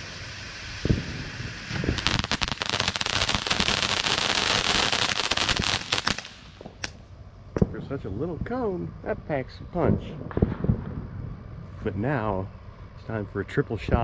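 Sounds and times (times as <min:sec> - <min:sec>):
firework rushing hiss with crackles: 0:00.0 - 0:08.0
sharp pop: 0:06.0 - 0:07.0.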